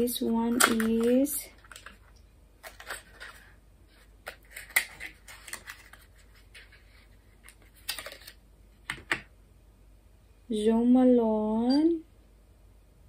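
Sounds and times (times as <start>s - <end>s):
cardboard packaging rustling: 0.6s - 8.4s.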